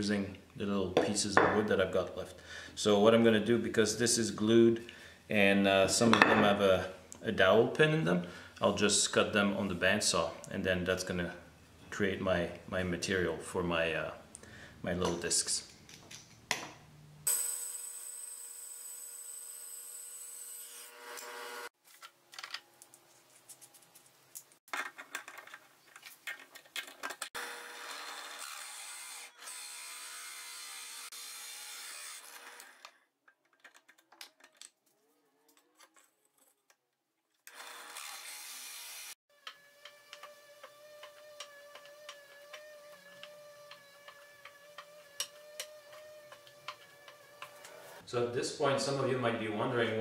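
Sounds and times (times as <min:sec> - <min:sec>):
bandsaw cutting wood: 0:17.3 - 0:21.7, 0:27.4 - 0:32.9, 0:37.5 - 0:48.0
clicks and metallic rattles: 0:33.2 - 0:34.8
wooden discs clicking on workbench: 0:39.4 - 0:47.8.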